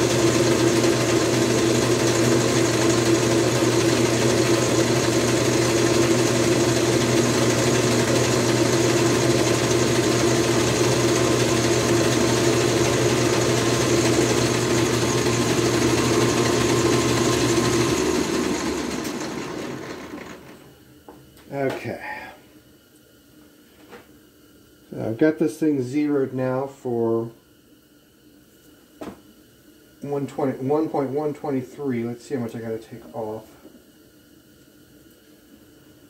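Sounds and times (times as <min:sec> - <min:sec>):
metal lathe motor humming: 0:00.0 - 0:20.6
lathe winding down: 0:00.0 - 0:20.7.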